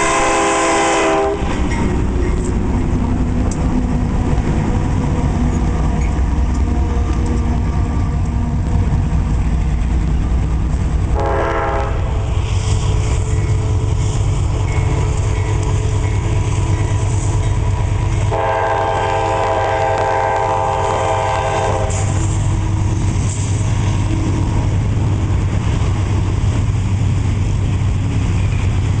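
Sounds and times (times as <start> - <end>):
locomotive air horn blast: 0.0 - 1.7, 11.1 - 12.2, 18.3 - 22.4
low rumble of passing train: 0.0 - 29.0.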